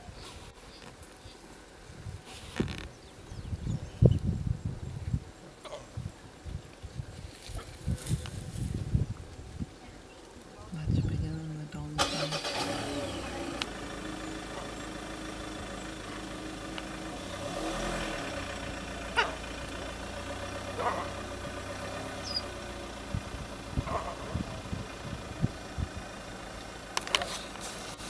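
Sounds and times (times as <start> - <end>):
vehicle engine idling: 10.0 - 28.0.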